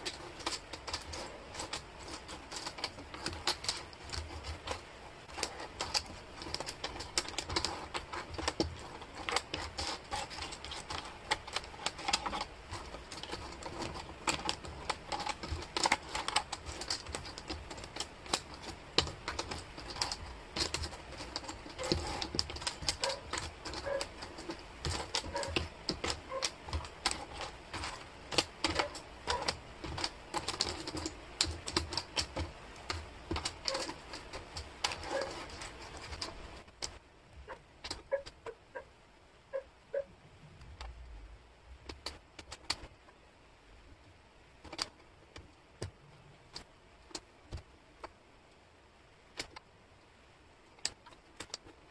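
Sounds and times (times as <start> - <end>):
wooden puzzle pieces clattering: 0.0 - 37.0.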